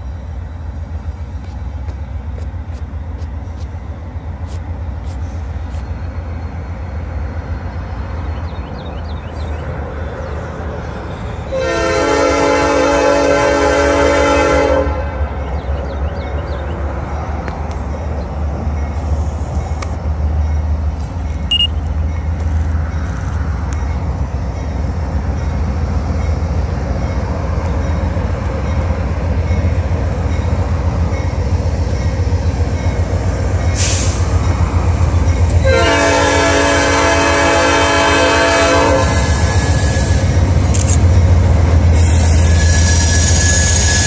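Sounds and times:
diesel locomotive engines rumbling: 0.0s - 44.0s
train horn chord: 11.5s - 15.2s, 35.6s - 39.6s.

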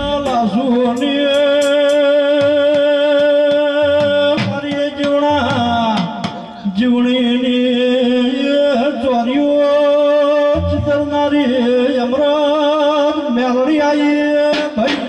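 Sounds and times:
devotional folk singing: 0.0s - 15.0s.

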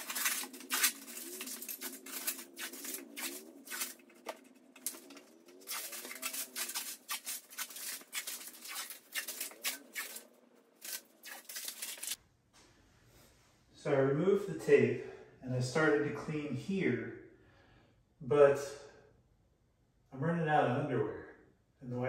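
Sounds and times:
tape peeling and crumpling: 0.0s - 12.2s.

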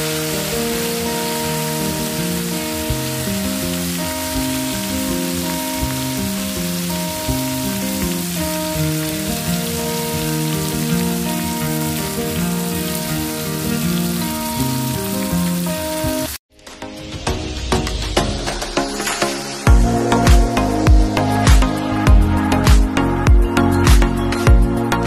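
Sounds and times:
crabs deep-frying in oil: 0.0s - 16.4s
background music: 0.0s - 25.0s.

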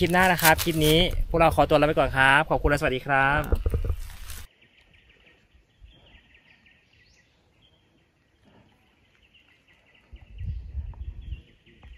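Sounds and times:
low rumble on microphone: 9.9s - 11.9s.

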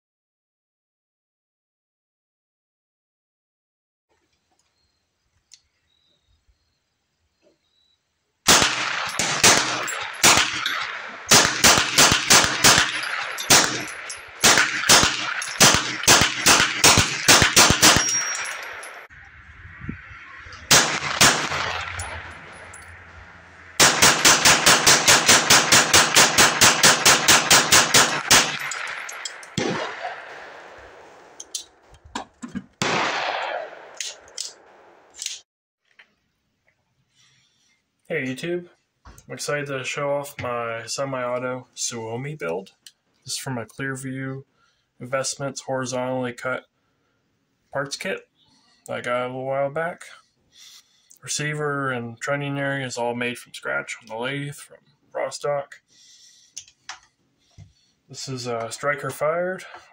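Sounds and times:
rifle firing single shots: 8.5s - 19.1s, 20.5s - 31.8s, 32.8s - 35.2s.

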